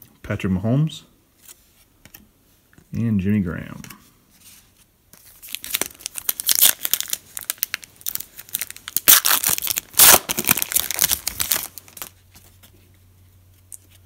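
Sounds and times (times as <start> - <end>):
foil wrapper crackling: 5.2 - 12.2.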